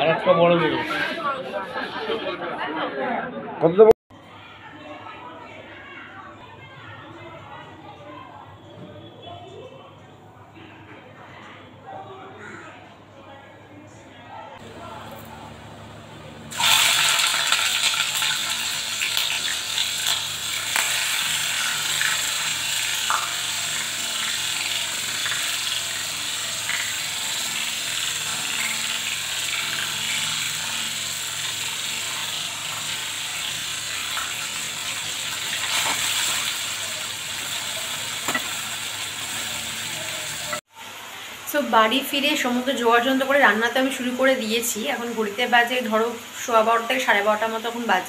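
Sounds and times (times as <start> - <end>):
onions sizzling in hot oil: 15.7 - 48.0.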